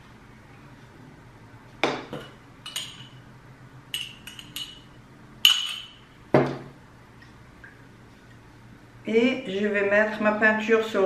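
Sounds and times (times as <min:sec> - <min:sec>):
drinking glass clinking: 0:04.0 - 0:06.6.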